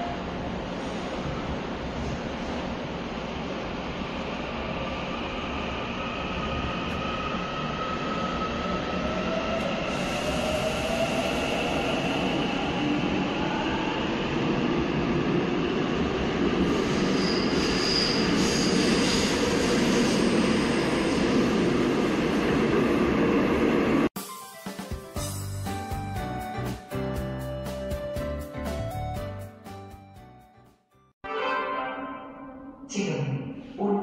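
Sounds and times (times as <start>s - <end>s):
thin wheel squeal: 17.2s - 19.2s.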